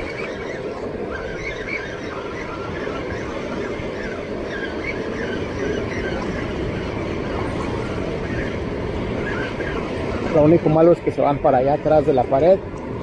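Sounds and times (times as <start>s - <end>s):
water roaring through spillway: 0.0s - 13.0s.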